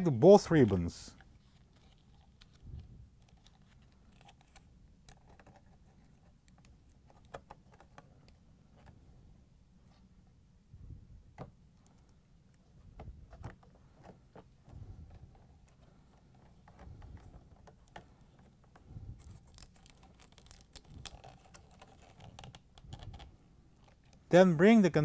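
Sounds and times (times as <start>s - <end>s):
connector clicks and rustles: 0.6s - 9.0s.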